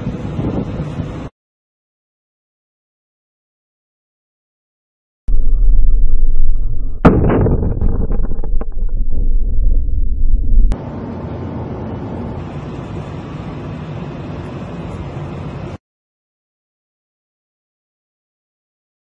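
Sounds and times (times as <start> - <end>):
boat engine and wind rumble: 0.0 - 1.3
crackling: 5.3 - 10.8
explosion blast: 5.3 - 10.8.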